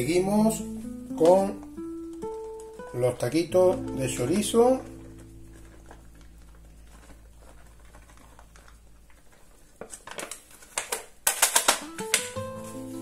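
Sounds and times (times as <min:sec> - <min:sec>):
background music: 0:00.0 - 0:06.6, 0:11.8 - 0:13.0.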